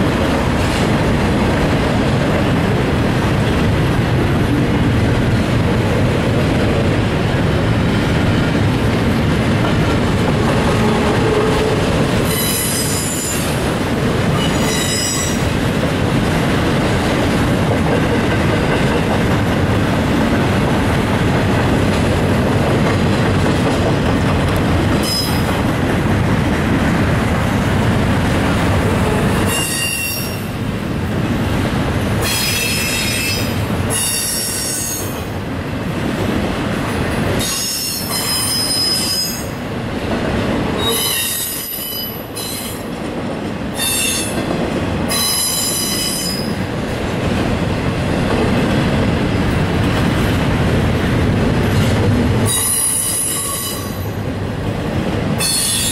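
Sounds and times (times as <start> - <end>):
freight train wheels rumbling: 0.0 - 55.9
train wheels squealing: 12.3 - 13.5, 14.4 - 15.4, 25.0 - 25.5, 29.5 - 30.5, 37.4 - 39.5, 40.8 - 42.8, 43.8 - 44.4, 45.1 - 46.5, 52.5 - 54.2.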